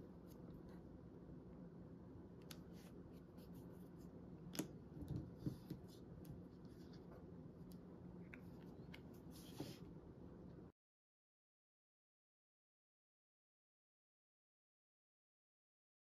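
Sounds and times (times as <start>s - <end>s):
low room hum: 0.0s - 10.8s.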